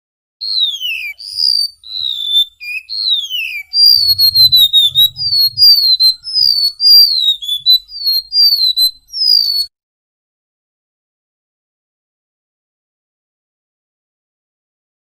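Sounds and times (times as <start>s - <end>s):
bird whistling song: 0.4s - 9.7s.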